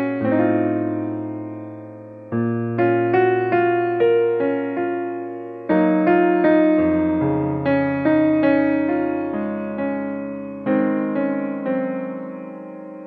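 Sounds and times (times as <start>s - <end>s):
soft electric piano chords: 0.0s - 13.0s.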